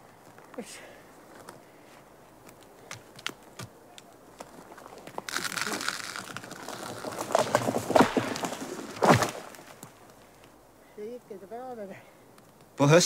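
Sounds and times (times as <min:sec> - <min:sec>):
branches crackling: 0:00.0 - 0:13.0
tree trunk landing thud: 0:04.3 - 0:10.5.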